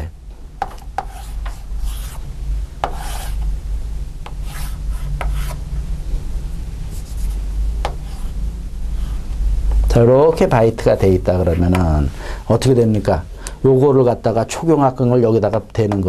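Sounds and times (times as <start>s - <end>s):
steady low hum: 0.0s - 16.0s
chalk scraping on blackboard: 0.6s - 2.2s, 2.8s - 3.4s, 4.2s - 5.6s, 6.9s - 9.3s
chalk tapping on board: 0.6s - 2.2s, 2.8s - 3.4s, 4.2s - 5.6s, 7.1s - 8.3s.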